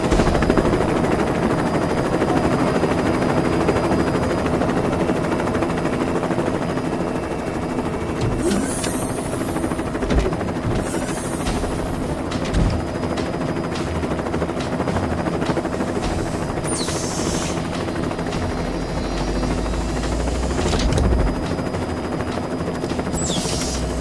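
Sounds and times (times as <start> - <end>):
helicopter rotor chopping: 0.0 - 24.0
hiss: 8.4 - 9.8, 16.1 - 20.8, 23.2 - 24.0.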